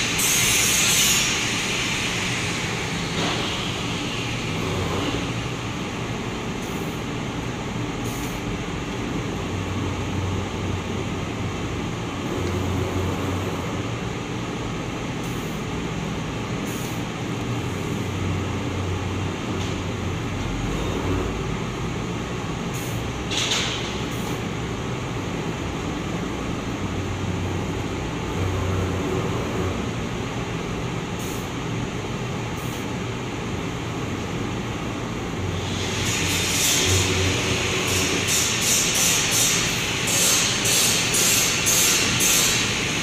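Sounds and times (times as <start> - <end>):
printing machine hum and rumble: 0.0 - 43.0.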